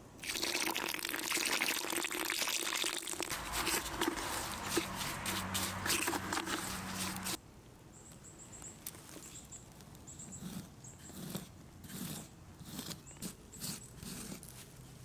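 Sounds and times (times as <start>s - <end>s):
cement stirred in plastic bucket: 0.2s - 7.4s
wet scraping swishes: 3.3s - 7.4s.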